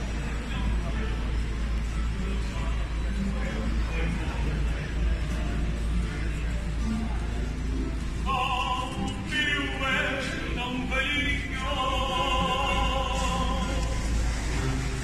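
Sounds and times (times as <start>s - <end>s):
guitar accompaniment: 0.0s - 15.0s
man singing with vibrato: 8.2s - 14.1s.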